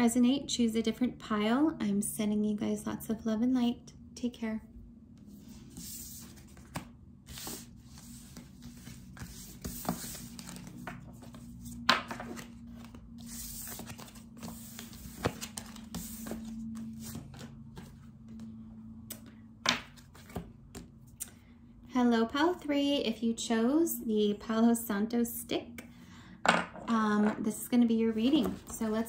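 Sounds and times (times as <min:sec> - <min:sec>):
cards scraping and rustling: 0:05.6 - 0:17.9.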